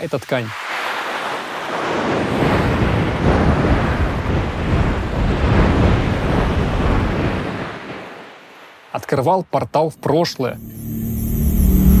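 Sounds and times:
dense surging whoosh: 10.6s - 12.0s
heavy low rumble: 10.6s - 12.0s.

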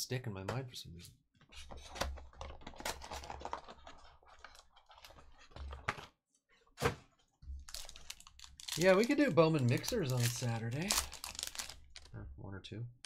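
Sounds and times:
cardboard and foil rustling: 7.6s - 12.1s.

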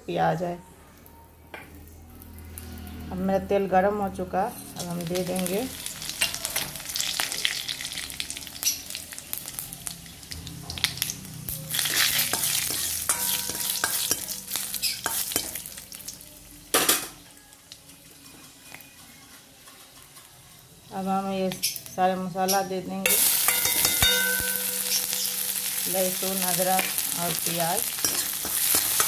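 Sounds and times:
spices sizzling in hot oil: 4.8s - 29.0s
spoon scraping metal pan: 11.7s - 15.7s, 22.5s - 29.0s.

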